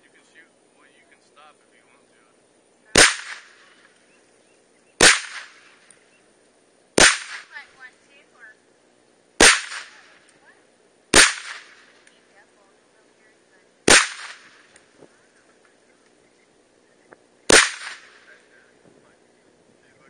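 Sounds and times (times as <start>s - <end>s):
rifle shots with echo: 3.0s - 3.8s, 5.0s - 5.8s, 7.0s - 7.6s, 9.4s - 10.2s, 11.1s - 12.0s, 13.8s - 14.8s, 17.5s - 18.4s.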